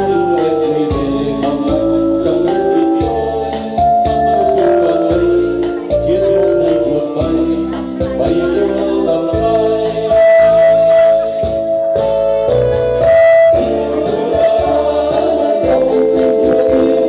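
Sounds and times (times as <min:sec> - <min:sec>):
loud dance music: 0:04.3 - 0:06.9, 0:10.0 - 0:17.0.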